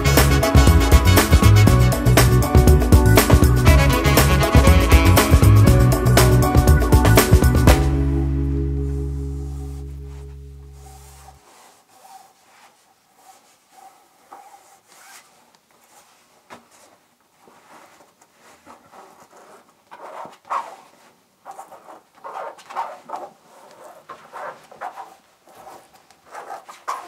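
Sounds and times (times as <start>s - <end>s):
hands rubbing lampshade material: 9.2s - 27.0s.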